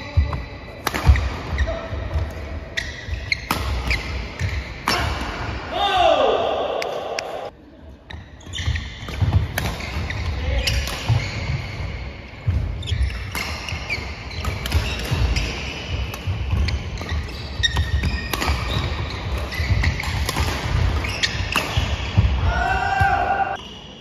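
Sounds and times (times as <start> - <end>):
racket hitting shuttlecock: 0.8 - 5.6, 8.7 - 23.6
shoe squeaks: 1.1 - 4.8, 8.1 - 12.1, 12.7 - 20.2, 20.9 - 22.2.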